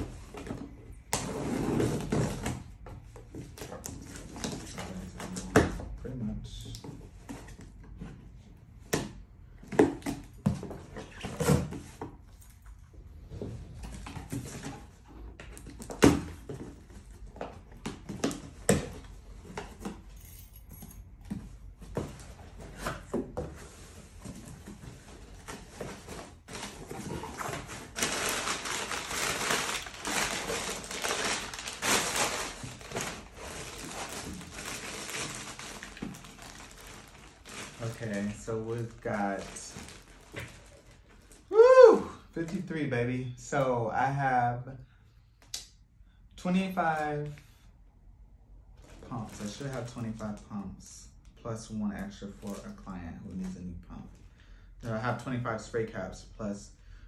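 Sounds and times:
cardboard rustling scrapes: 22.2 - 41.1
plastic bag crinkling: 26.5 - 41.5.

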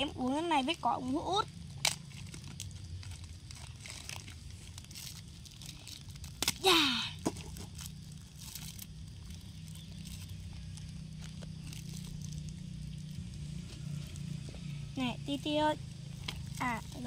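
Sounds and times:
plastic wrapping crinkling and tearing: 1.0 - 14.8, 16.0 - 17.0.

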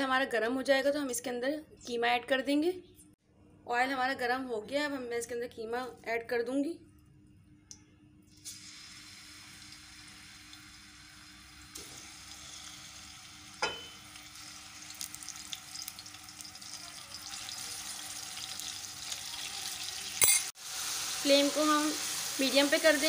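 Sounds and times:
meat sizzling in hot oil: 8.3 - 23.0.

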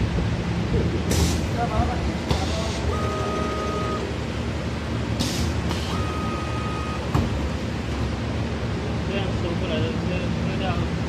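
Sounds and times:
pneumatic air hisses: 1.1 - 1.6, 5.2 - 6.1
machine hum: 2.0 - 8.1
steady high tone: 2.8 - 4.2, 5.9 - 7.2.

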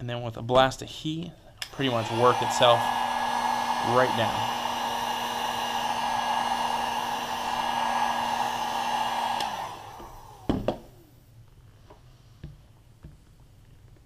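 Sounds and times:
fan winding down: 1.6 - 11.1
heat gun blowing with a hum: 1.6 - 11.3.

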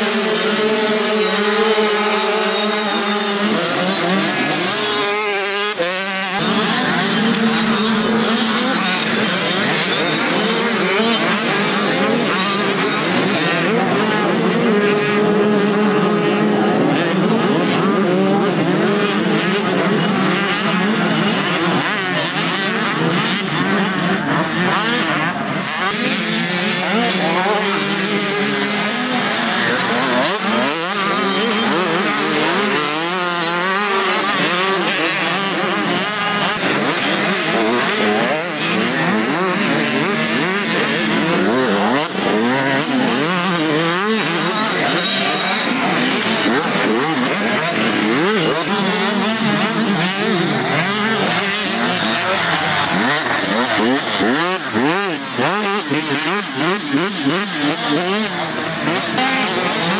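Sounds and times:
motocross bike engines racing: 0.0 - 59.9.

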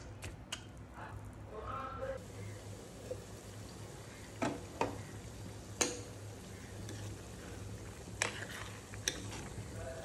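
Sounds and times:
curry simmering in a pot: 2.2 - 10.0.

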